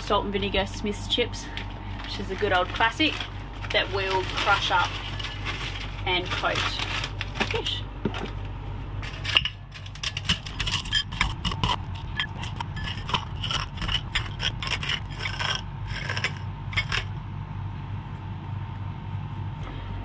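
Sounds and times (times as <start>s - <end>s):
low hum: 0.0s - 20.0s
potato chips crushed by hand: 2.0s - 7.7s, 9.0s - 17.1s.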